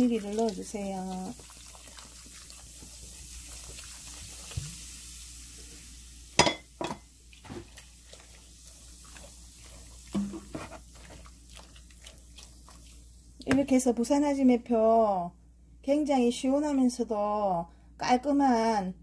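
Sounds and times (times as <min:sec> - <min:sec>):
sparkling water fizzing: 0:00.0 - 0:13.4
wooden spoon knocking container: 0:10.1 - 0:10.8.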